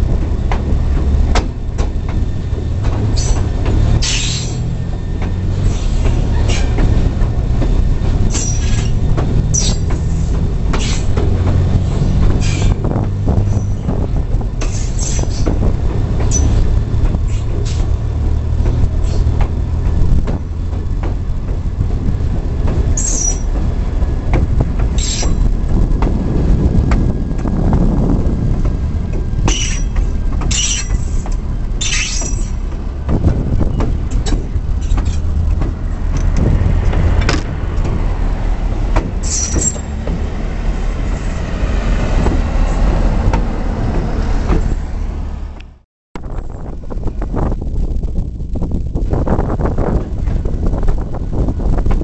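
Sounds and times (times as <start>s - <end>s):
locomotive engine and wheels rumbling: 0.0s - 52.0s
high squeals: 16.3s - 16.6s.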